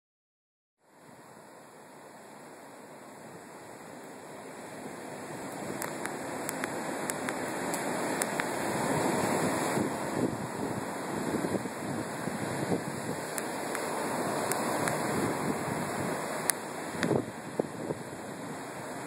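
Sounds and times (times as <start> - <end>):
surf breaking on beach: 0.8 - 19.0
wind on microphone: 5.2 - 19.0
faint clicks: 5.8 - 8.5.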